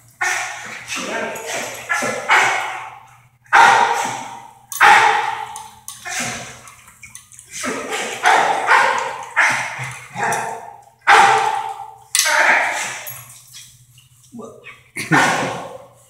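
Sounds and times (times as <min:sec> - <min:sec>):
dog barking in kennel: 0:00.2 - 0:06.5, 0:07.6 - 0:13.2.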